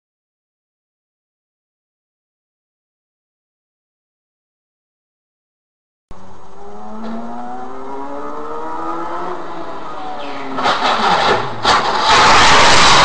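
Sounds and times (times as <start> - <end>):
car engine accelerating: 6.1 - 13.0
loud rough noise: 6.1 - 13.0.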